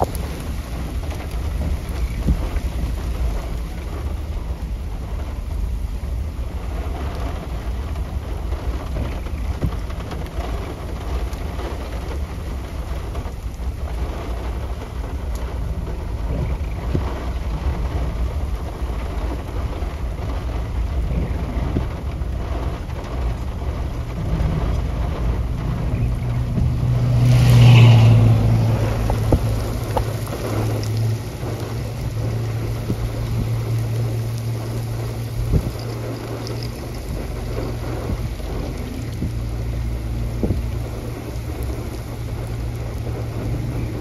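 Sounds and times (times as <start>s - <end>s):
steady rain: 0.0s - 44.0s
vehicle passing: 24.0s - 44.0s.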